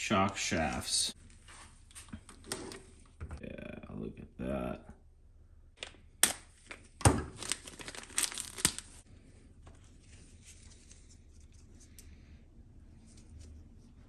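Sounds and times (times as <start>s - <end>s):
plastic bag crinkling: 7.2s - 9.0s.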